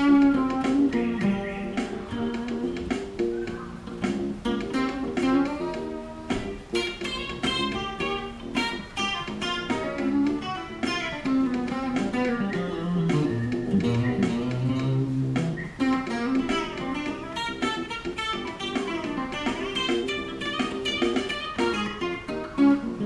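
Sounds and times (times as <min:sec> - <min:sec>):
drum hits: 0:00.0 - 0:22.1
electric guitar funk lines: 0:00.0 - 0:23.0
bass line: 0:10.9 - 0:17.4.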